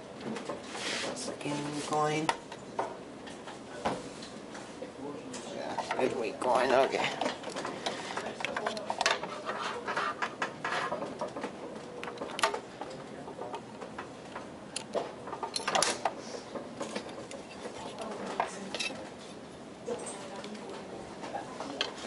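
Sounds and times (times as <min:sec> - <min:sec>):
computer parts clicking and rattling: 0:10.2 - 0:16.2.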